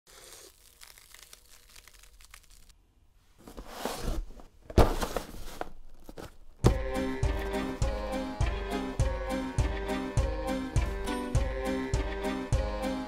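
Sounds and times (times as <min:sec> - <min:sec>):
packaging rustling and tearing: 0:00.1 - 0:02.8.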